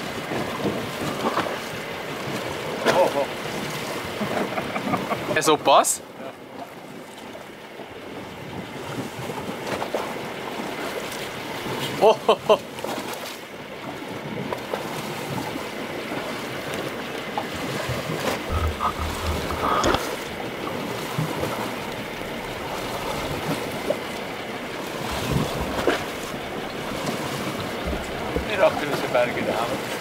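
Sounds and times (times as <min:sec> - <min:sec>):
wind and sea noise: 0:00.0 - 0:30.0
wind buffeting microphone: 0:18.4 - 0:30.0.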